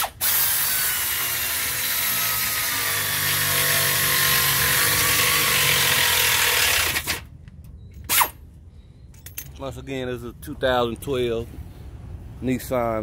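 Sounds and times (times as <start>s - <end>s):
pneumatic wrench running: 0.0s - 7.2s.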